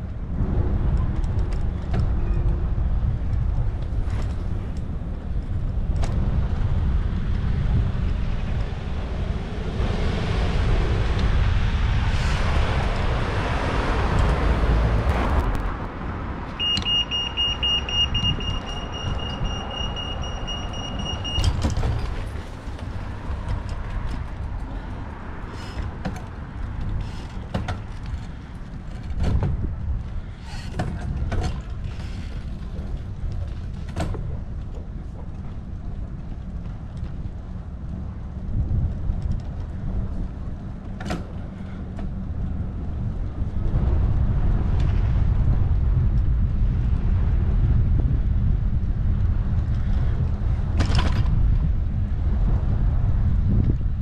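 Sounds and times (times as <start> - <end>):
road traffic passing: 0.0 - 54.0
wind rumbling on microphone: 0.0 - 54.0
pedestrian crossing signal beep: 16.6 - 21.7.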